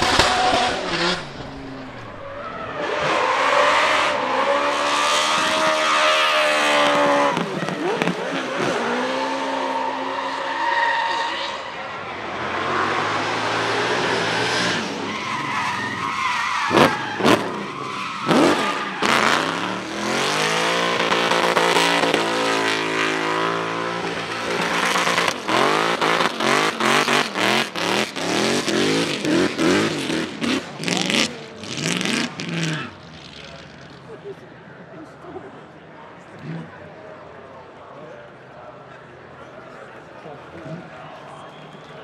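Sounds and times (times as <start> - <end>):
sharp bangs: 0.0 - 2.4
tyres screeching: 14.5 - 33.8
car engine revving hard: 16.7 - 33.0.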